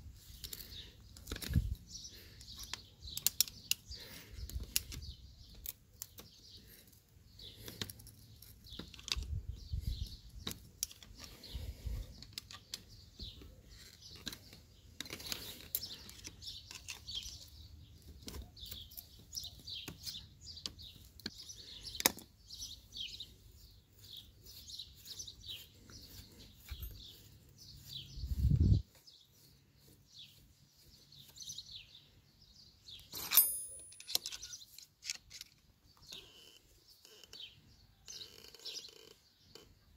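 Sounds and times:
small birds chirping: 0.0 - 39.9
screwdriver clicking and scraping metal: 2.4 - 3.8, 13.9 - 17.5, 33.0 - 35.7
sharp ringing metal clink: 33.1 - 34.2.

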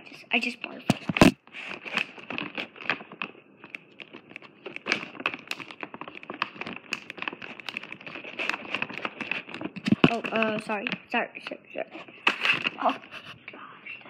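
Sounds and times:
plastic bag crinkling: 1.2 - 13.2.

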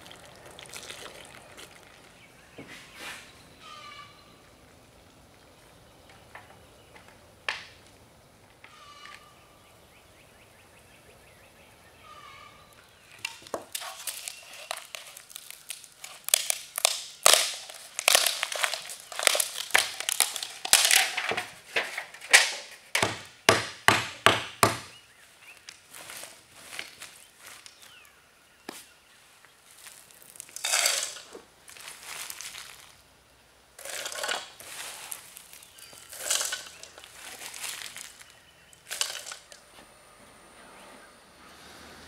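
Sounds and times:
pitch crackling and cracking: 13.2 - 21.5, 30.2 - 31.3
hammer strikes: 23.0 - 24.9.

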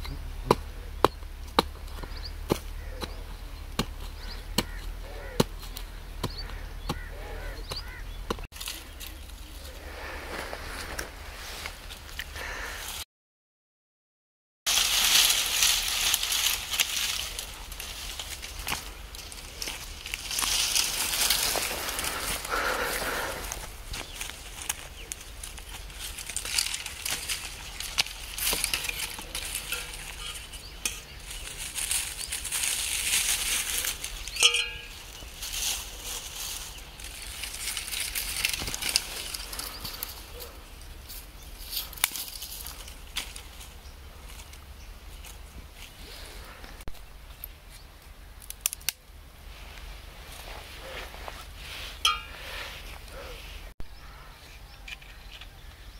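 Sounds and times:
dry twigs rustling: 0.0 - 13.0, 14.7 - 55.9
twigs snapping: 14.7 - 45.4, 48.3 - 49.1.

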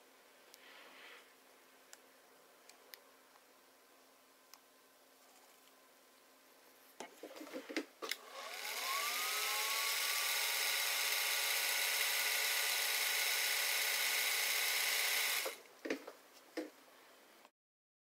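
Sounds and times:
sewing machine motor whining: 8.1 - 15.6.

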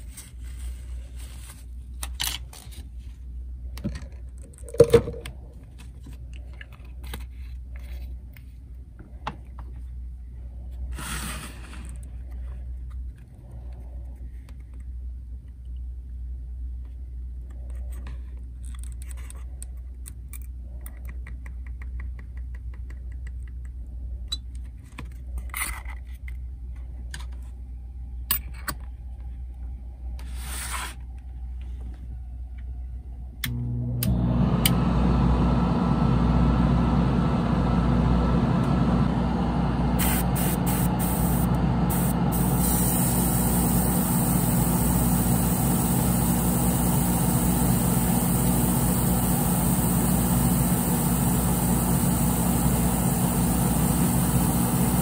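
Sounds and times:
steady low hum: 23.5 - 55.0
short hissing bursts: 40.0 - 55.0.

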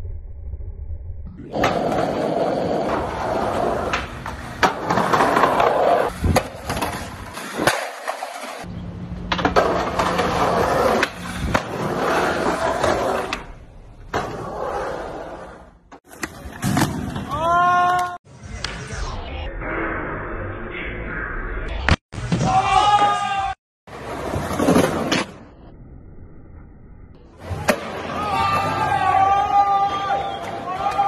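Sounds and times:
skateboard wheels rolling: 1.4 - 18.2, 23.9 - 25.5.

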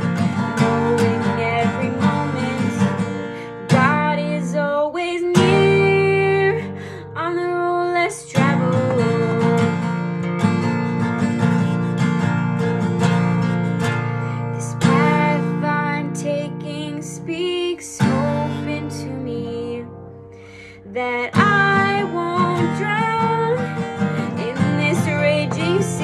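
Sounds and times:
acoustic guitar strumming chords: 0.0 - 4.6, 21.3 - 26.0.

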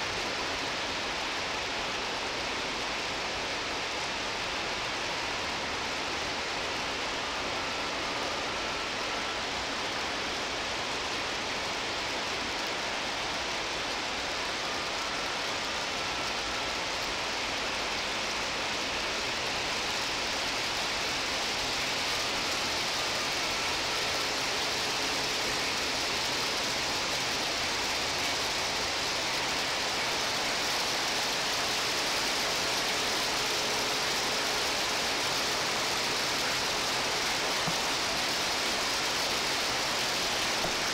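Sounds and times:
heavy rain pouring: 0.1 - 40.9
faint freight train rolling: 12.6 - 40.9.

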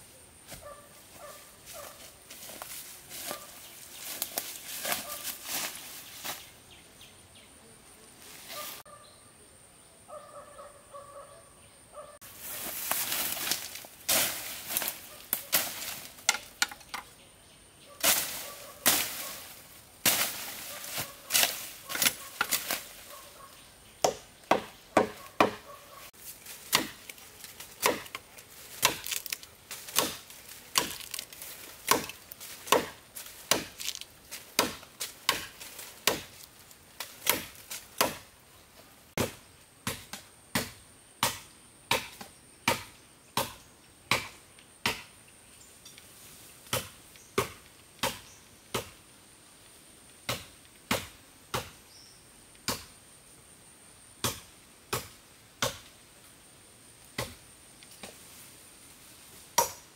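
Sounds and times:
blade chopping wood: 24.0 - 25.7, 26.6 - 36.4, 37.0 - 38.3.

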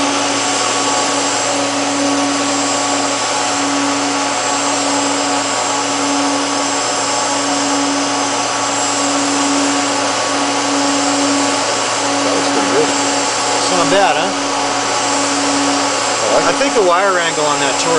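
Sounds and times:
constant hum: 0.0 - 17.9.

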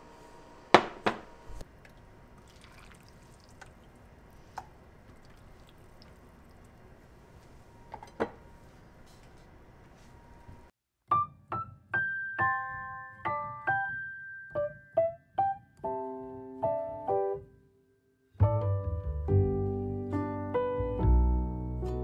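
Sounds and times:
soft solo piano music: 11.1 - 17.5.

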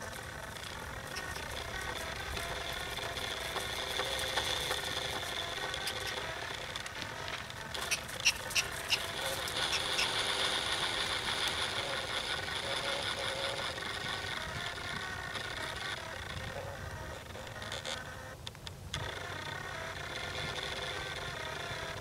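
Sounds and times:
horse trotting: 0.0 - 12.4
horse cart rattling: 0.0 - 17.5.

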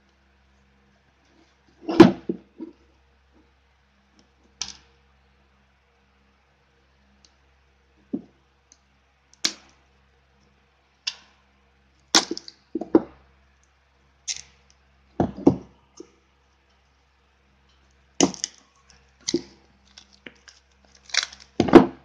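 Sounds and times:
knocks on cardboard box: 15.2 - 15.6.

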